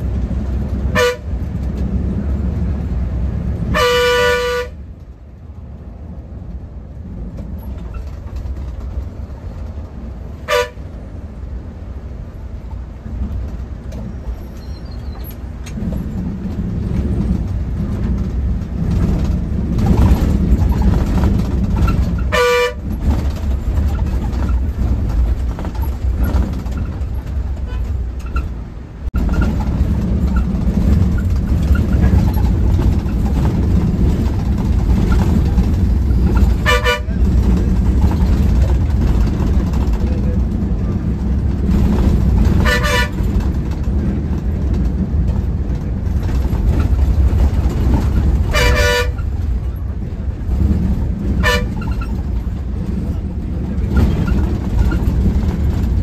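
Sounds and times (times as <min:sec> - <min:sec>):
bus engine running: 0:00.0 - 0:56.0
road noise: 0:00.0 - 0:56.0
vehicle horn honking: 0:00.9 - 0:01.3, 0:03.7 - 0:04.8, 0:10.4 - 0:10.8, 0:22.3 - 0:22.9, 0:36.6 - 0:37.2, 0:42.6 - 0:43.2, 0:48.5 - 0:49.2, 0:51.4 - 0:51.8.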